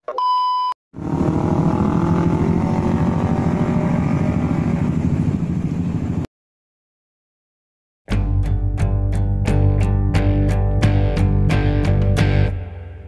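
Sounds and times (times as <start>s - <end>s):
electronic test-tone beep: 0.1s - 0.8s
motorcycle engine running: 1.0s - 6.2s.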